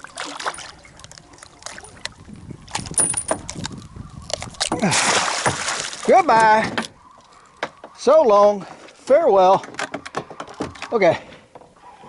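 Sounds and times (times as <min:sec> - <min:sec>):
fish thrashing and splashing: 0:00.0 - 0:08.0
metal dehooking tool rattling: 0:02.7 - 0:03.6.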